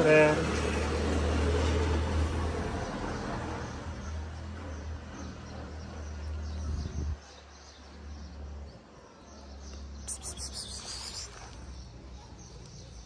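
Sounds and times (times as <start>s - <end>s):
high chirping: 10.0s - 11.8s.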